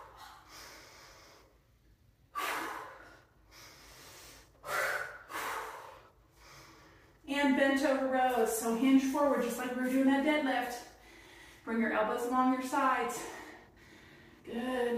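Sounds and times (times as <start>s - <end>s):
woman breathing hard: 0.0s - 7.2s, 10.9s - 11.7s, 13.1s - 14.5s.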